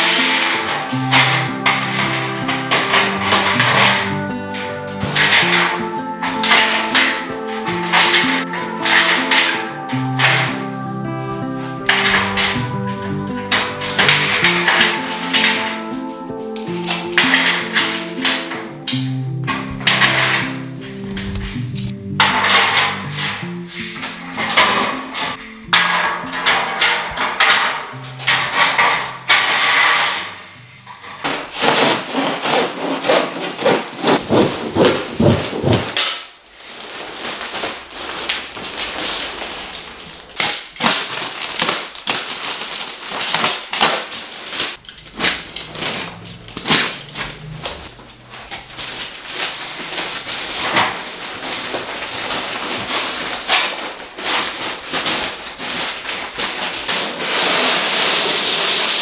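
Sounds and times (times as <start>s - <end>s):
scraping and rubbing: 0.0s - 18.6s, 19.5s - 59.0s
tools and materials knocking: 22.2s - 23.5s, 24.3s - 30.3s, 31.0s - 36.2s.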